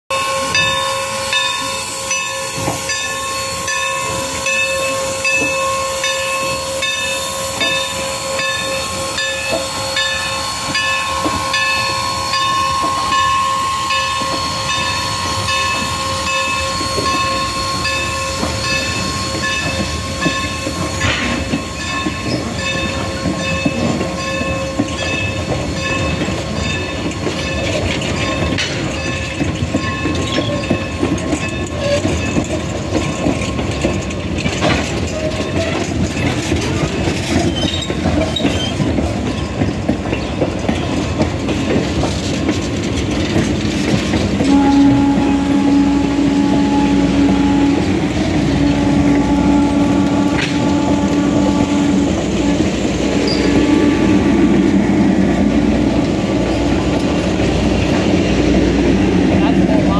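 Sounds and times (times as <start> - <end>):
steam locomotive exhaust and hiss: 0.1 - 59.9
train wheels clattering over rail joints: 2.2 - 59.9.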